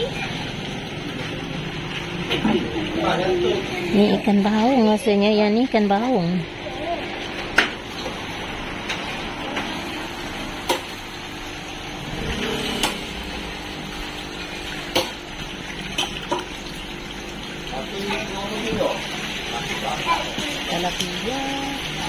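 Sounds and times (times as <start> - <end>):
water bubbling from aeration hoses: 9.2 - 22.0.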